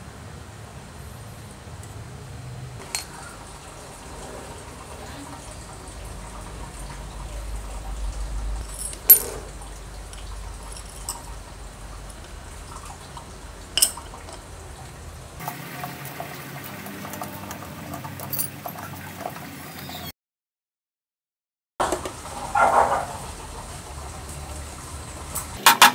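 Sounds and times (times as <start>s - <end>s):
metal parts clinking and tapping: 2.8s - 3.2s, 8.6s - 9.5s, 10.1s - 11.4s, 13.8s - 14.4s, 18.2s - 18.8s, 25.6s - 25.9s.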